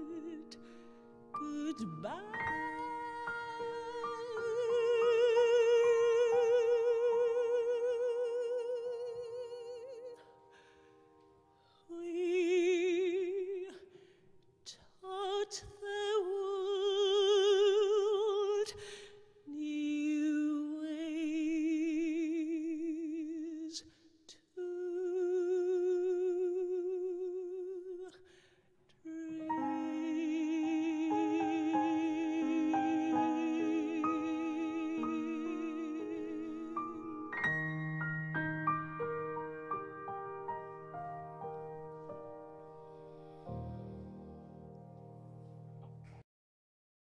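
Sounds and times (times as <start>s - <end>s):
woman singing a ballad: 0.0s - 0.8s, 1.4s - 10.3s, 11.8s - 13.9s, 14.7s - 23.9s, 24.5s - 28.3s, 29.0s - 37.7s
grand piano accompaniment: 0.0s - 13.7s, 29.2s - 46.2s.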